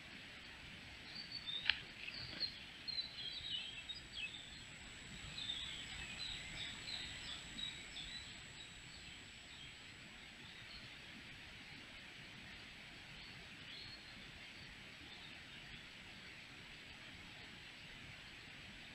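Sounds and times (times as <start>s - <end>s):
faint forest background: 0.0s - 18.9s
faint high whine: 0.0s - 18.9s
small birds chirping: 1.0s - 10.9s.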